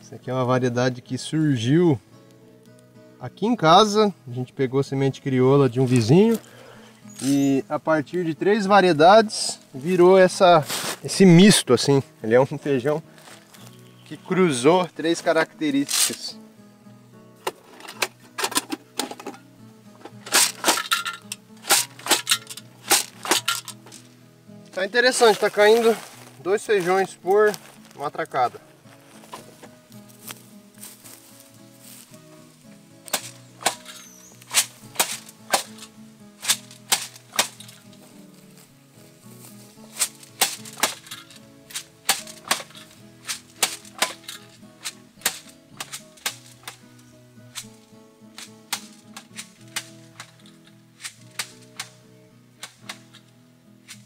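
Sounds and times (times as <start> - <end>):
background music: 0.0 - 54.0
seed mechanism rattling: 20.1 - 24.0, 39.9 - 46.8
hand planter clacking: 33.1 - 37.8, 40.0 - 46.9.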